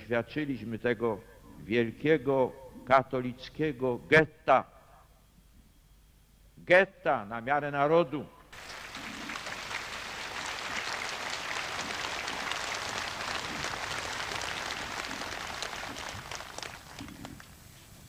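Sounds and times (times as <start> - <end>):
crowd applauding: 8.6 - 17.6.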